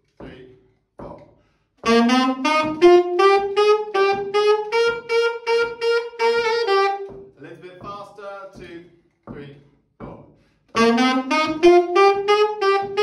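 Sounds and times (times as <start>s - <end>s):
alto saxophone playing: 1.8s - 7.4s, 10.8s - 13.0s.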